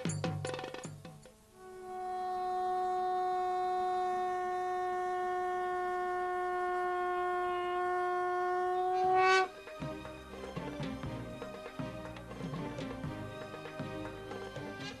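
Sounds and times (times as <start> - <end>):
long horn note: 1.6 - 9.6.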